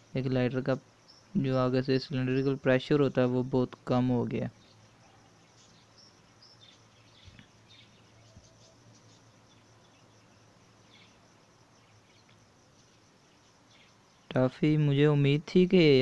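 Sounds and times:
faint ticks: 12.0s - 14.0s.

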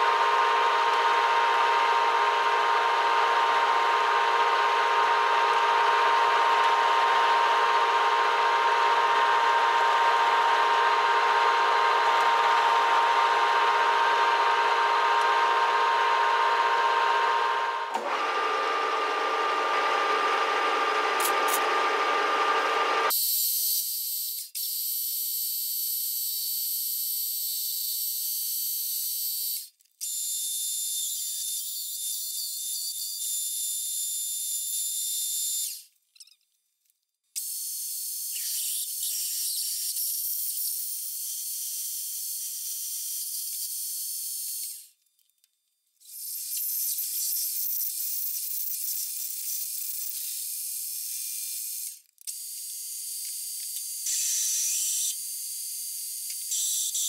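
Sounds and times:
metal lathe motor whine: 0.0s - 23.1s
drill boring into metal bar: 0.0s - 23.2s.

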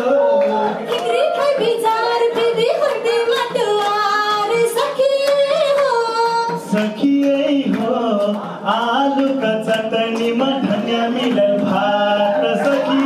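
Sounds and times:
high voice singing folk song: 6.0s - 13.0s.

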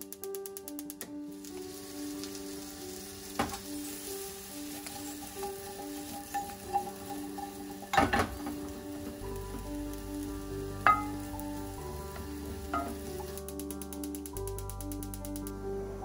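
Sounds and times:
potatoes sizzling in a frying pan: 1.3s - 13.6s
spatula scraping a pan: 3.6s - 9.2s.

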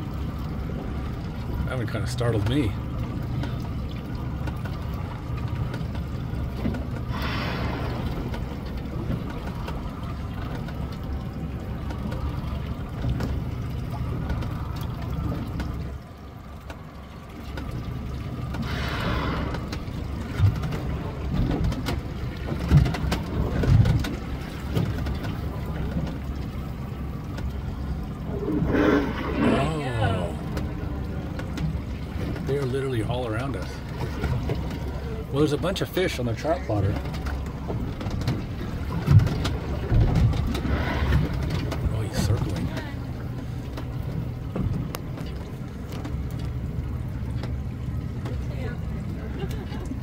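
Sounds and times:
boat engine idling: 0.0s - 50.0s.

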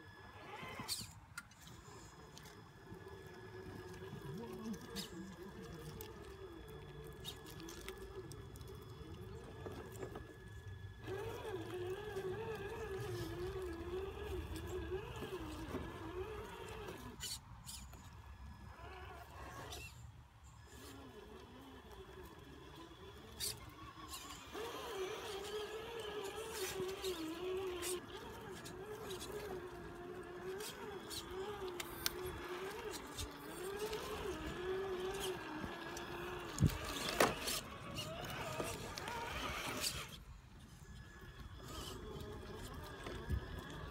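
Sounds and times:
electric motor whining: 0.0s - 43.9s
toy truck bumping against rock: 24.2s - 40.2s.

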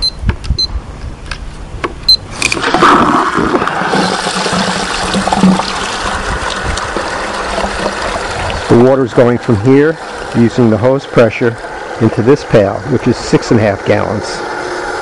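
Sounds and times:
digital timer beeps: 0.0s - 0.7s
water rushing: 2.4s - 15.0s.

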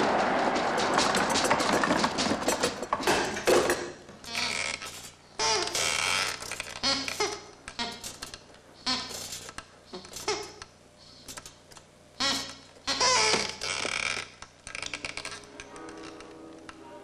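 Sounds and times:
squeaky voice-like chirps: 4.3s - 11.4s, 12.2s - 14.2s.

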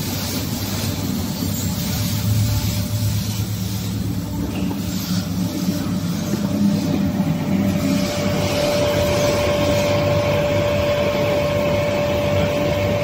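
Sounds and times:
steady machine whine: 0.0s - 13.0s
cutting machine droning: 6.0s - 13.0s.

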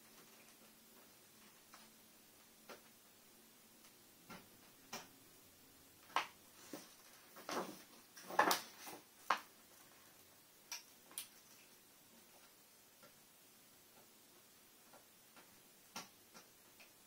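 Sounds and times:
light clicks and taps of tools: 14.9s - 17.0s.

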